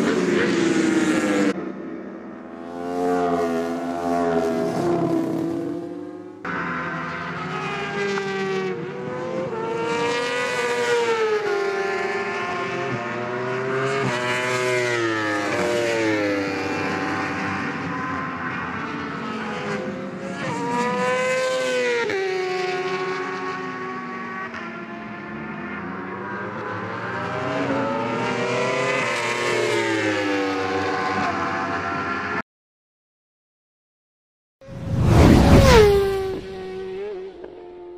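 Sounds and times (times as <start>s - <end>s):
motorcycle engines revving: 0.0s - 32.4s, 34.6s - 37.9s
superbike engines at high revs: 34.7s - 37.9s.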